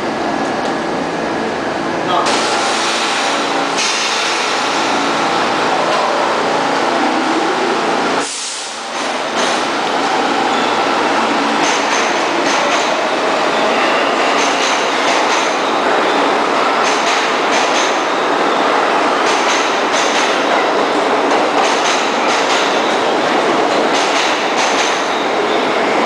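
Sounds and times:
subway train rumbling past: 0:00.0 - 0:26.0
rail-joint clatter: 0:08.9 - 0:09.7, 0:11.6 - 0:13.1, 0:14.2 - 0:15.7, 0:16.8 - 0:18.2, 0:19.2 - 0:20.7, 0:21.3 - 0:23.0, 0:23.7 - 0:25.2.

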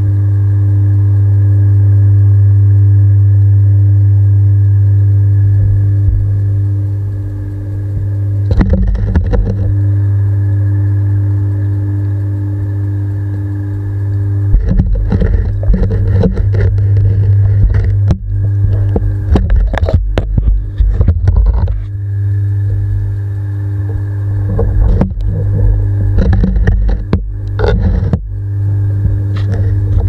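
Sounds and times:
low hum: 0:00.0 - 0:30.0
underwater knocks and scrapes: 0:07.9 - 0:09.8, 0:14.4 - 0:22.0, 0:23.8 - 0:28.4, 0:29.0 - 0:30.0.

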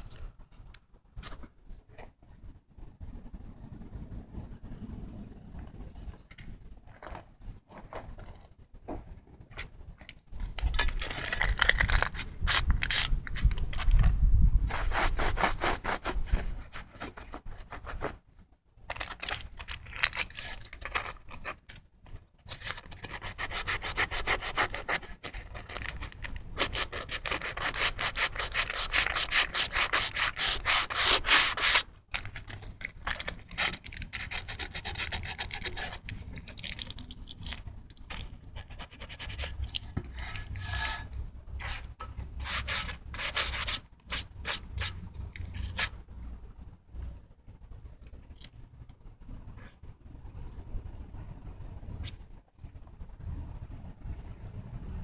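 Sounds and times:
rapid rasping rubbing strokes: 0:23.0 - 0:31.8, 0:38.6 - 0:45.0.

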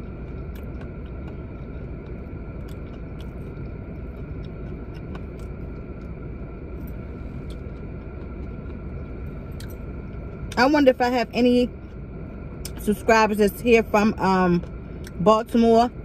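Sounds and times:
food chewing clicks: 0:00.0 - 0:06.6, 0:07.4 - 0:10.7
car idling rumble: 0:00.0 - 0:16.0
faint steady whine: 0:00.0 - 0:16.0.

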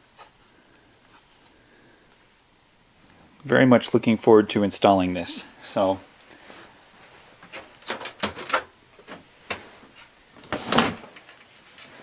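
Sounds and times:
panel sliding and clattering: 0:07.5 - 0:09.7.

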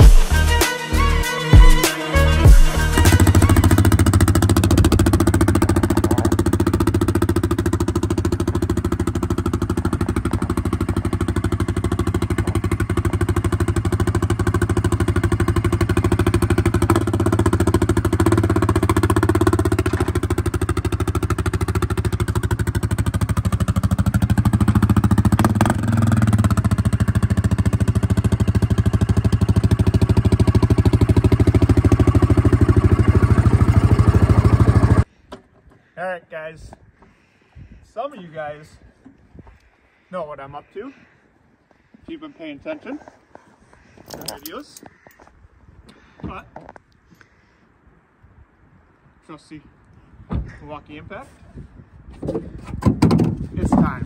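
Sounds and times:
atv engine running: 0:02.3 - 0:35.1.

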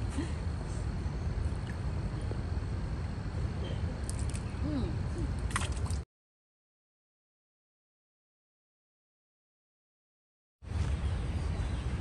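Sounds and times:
small splashes: 0:05.4 - 0:06.0.

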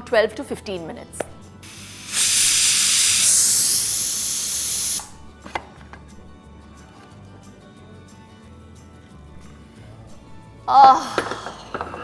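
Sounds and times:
pressure cooker steam hissing: 0:01.6 - 0:05.2.

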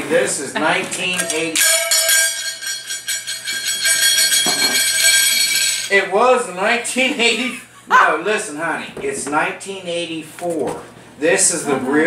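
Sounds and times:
small bells jingling: 0:01.0 - 0:06.2.

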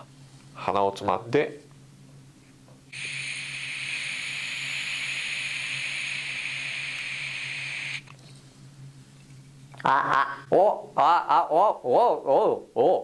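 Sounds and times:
spray can hissing: 0:02.9 - 0:08.1.

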